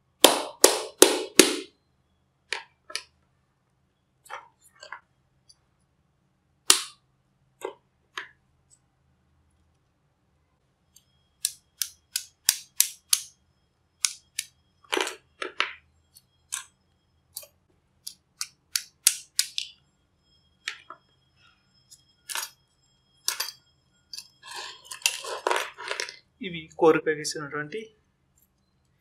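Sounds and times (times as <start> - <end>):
metal laminations clicking and clinking: 23.2 - 26.2.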